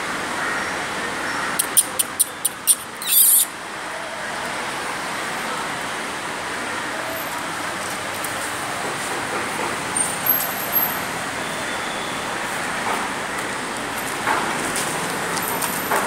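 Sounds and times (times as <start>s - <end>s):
road traffic noise: 0.0s - 16.0s
sharp clicks: 1.6s - 3.5s.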